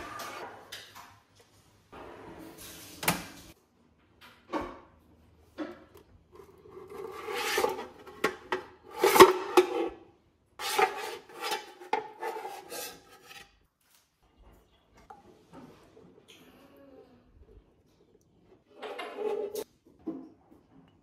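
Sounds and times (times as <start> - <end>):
cloth rubbing and scraping pan: 6.3 - 10.0, 10.6 - 13.6.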